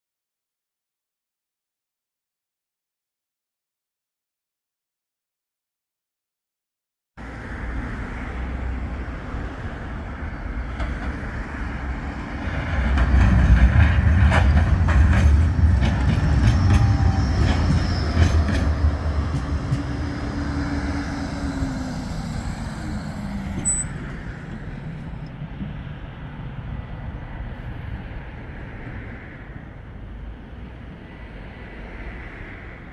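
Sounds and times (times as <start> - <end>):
tram rumbling past: 7.2 - 32.9
wheels clicking on rails: 10.6 - 25.8
falling whine: 14.1 - 25.6.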